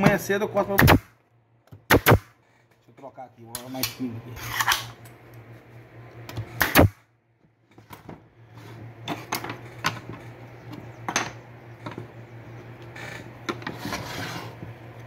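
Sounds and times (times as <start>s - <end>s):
steady low hum: 0.0s - 15.0s
nail gun firing: 0.8s - 1.1s, 1.8s - 2.3s, 6.6s - 7.0s.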